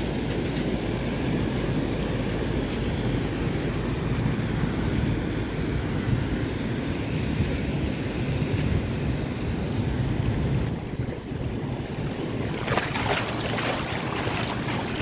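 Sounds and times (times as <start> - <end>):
wind buffeting microphone: 5.0 - 15.0
ocean surf breaking: 11.6 - 15.0.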